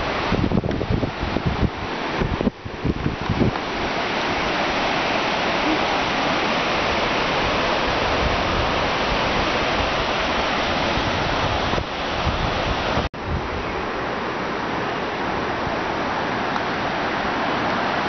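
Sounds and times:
wind buffets on microphone: 0.0s - 14.1s
mountain river rushing: 0.0s - 18.0s.

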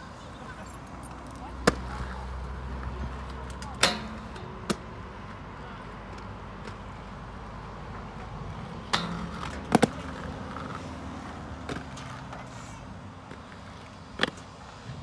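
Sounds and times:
inline skates rolling on concrete: 0.0s - 15.0s
skates grinding metal handrail: 1.6s - 4.9s, 8.2s - 14.5s.

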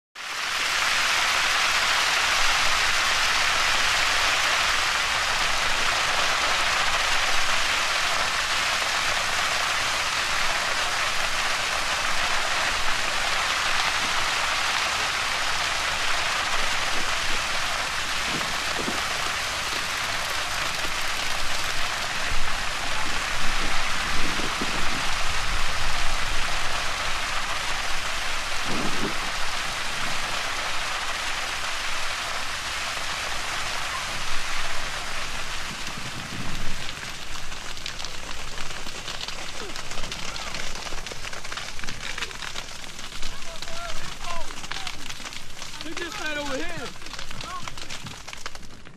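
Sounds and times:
crackle of burning cane: 0.2s - 48.9s.

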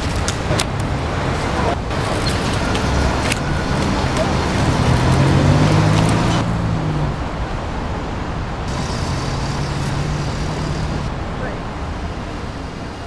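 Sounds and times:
engine humming: 0.0s - 13.0s
street traffic: 0.0s - 13.0s
high hiss: 8.7s - 11.1s.

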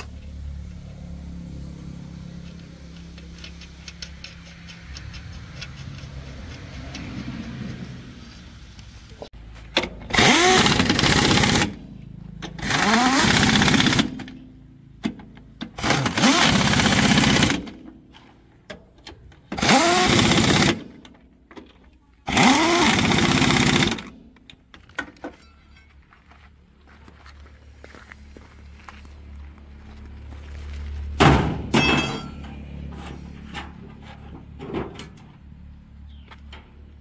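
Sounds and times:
impact wrench hammering: 31.2s - 32.5s.

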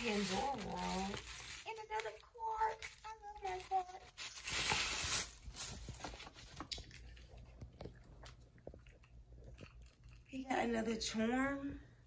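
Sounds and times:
tissue paper rustling: 0.0s - 6.7s.

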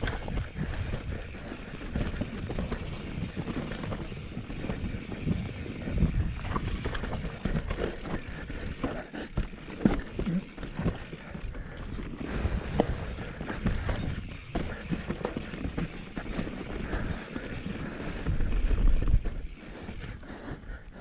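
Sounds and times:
wind buffeting microphone: 0.0s - 8.9s, 16.8s - 20.0s
bike knocks and rattles: 0.0s - 17.5s.

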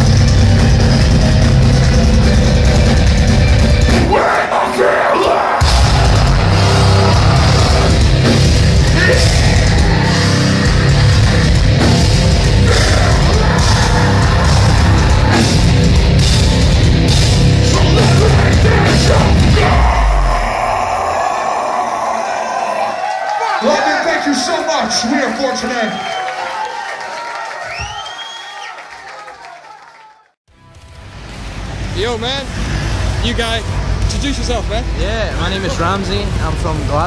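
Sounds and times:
loud heavy metal music: 0.0s - 23.0s.

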